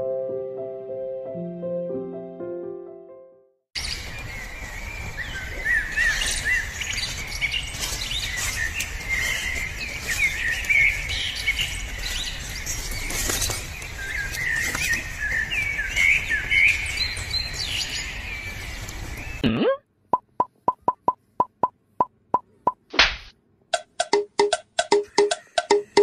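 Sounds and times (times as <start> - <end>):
birds chirping: 3.8 - 21.7, 24.9 - 26.0.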